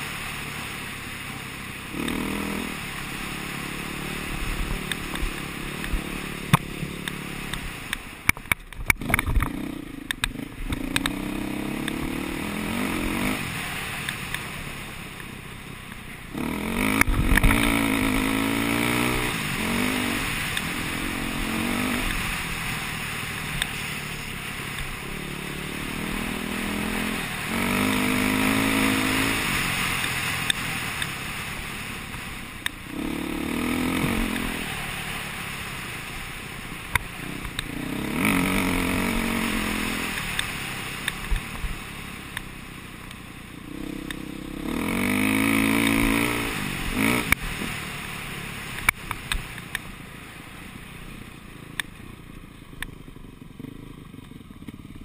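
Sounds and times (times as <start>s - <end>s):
dirt bike engine revving: 0.0s - 42.7s, 43.4s - 49.6s
sharp clacks: 4.8s - 11.2s.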